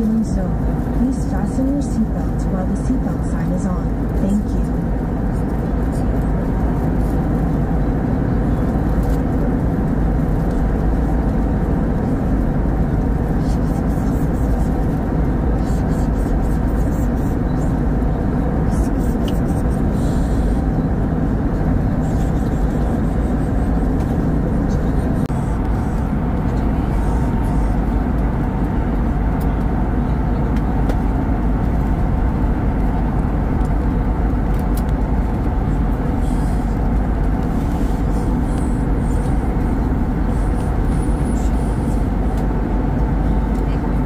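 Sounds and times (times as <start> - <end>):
airplane cabin engine rumble: 0.0 - 44.0.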